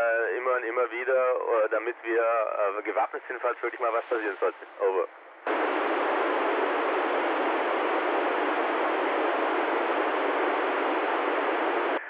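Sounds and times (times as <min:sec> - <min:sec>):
radio receiver hiss: 0:02.5 - 0:12.0.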